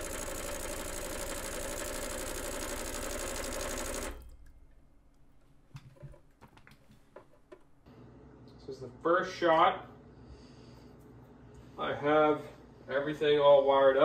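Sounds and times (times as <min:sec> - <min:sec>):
water pump buzzing: 0:00.0 - 0:04.4.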